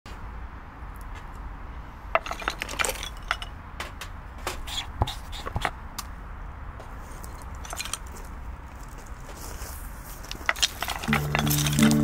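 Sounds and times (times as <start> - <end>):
wooden knocks and scrapes: 10.3 - 12.0.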